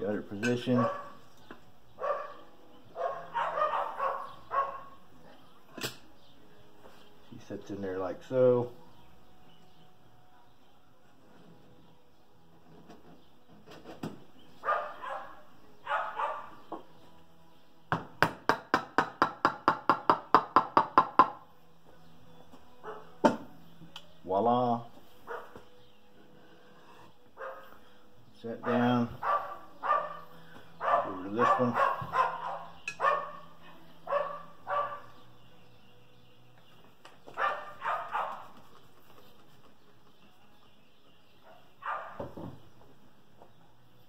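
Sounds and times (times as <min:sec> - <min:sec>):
dog barking: 0:00.8 - 0:01.2, 0:02.0 - 0:02.4, 0:03.0 - 0:05.0, 0:14.6 - 0:16.6, 0:22.8 - 0:23.2, 0:25.3 - 0:25.6, 0:27.4 - 0:27.7, 0:28.6 - 0:30.2, 0:30.8 - 0:35.2, 0:37.4 - 0:38.5, 0:41.4 - 0:42.3.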